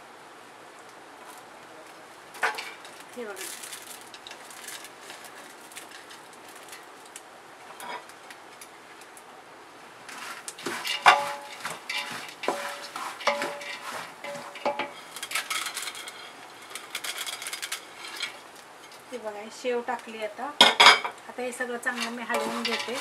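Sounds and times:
crisp noodles rustling: 0:01.2 - 0:07.2, 0:10.1 - 0:19.2, 0:21.8 - 0:23.0
utensils knocking on metal pot: 0:10.6 - 0:16.2, 0:21.9 - 0:23.0.

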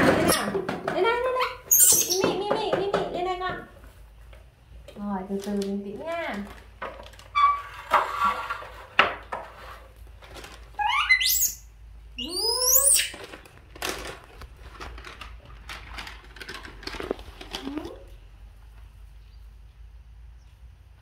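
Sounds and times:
monkey squealing: 0:01.7 - 0:02.3, 0:10.8 - 0:13.2
plastic packet crinkling: 0:05.3 - 0:07.3, 0:10.0 - 0:10.8, 0:13.1 - 0:18.2.

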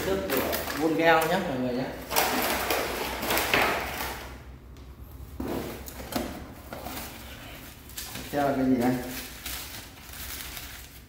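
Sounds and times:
tool boxes rustling and scraping: 0:05.1 - 0:10.4.

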